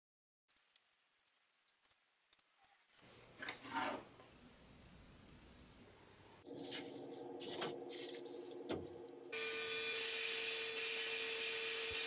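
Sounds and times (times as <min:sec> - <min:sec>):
sandblaster hissing: 0:09.4 - 0:12.0.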